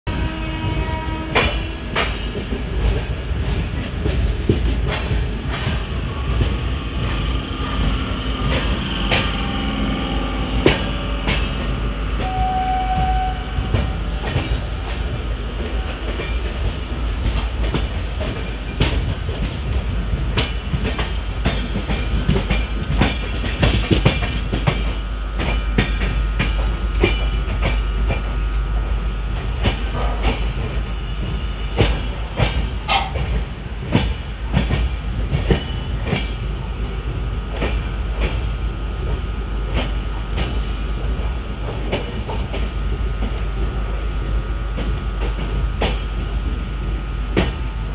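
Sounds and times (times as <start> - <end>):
train wheels rumbling on track: 0.1 - 47.9
clacks over rail joints: 1.9 - 9.6, 29.4 - 38.5.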